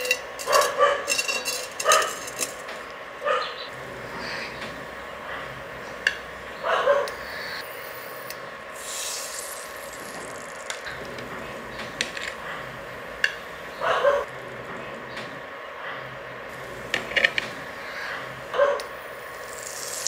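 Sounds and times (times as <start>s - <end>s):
dog barking: 0.5s - 1.1s, 1.8s - 2.2s, 3.2s - 3.7s, 6.6s - 7.2s, 13.8s - 14.3s, 18.5s - 18.9s
food sizzling in oil: 8.7s - 10.9s, 19.3s - 20.0s.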